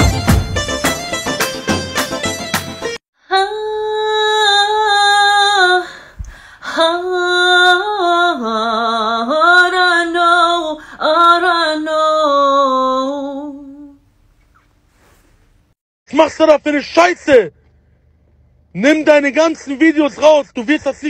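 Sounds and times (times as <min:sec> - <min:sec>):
woman singing unaccompanied: 0:03.3 - 0:14.0.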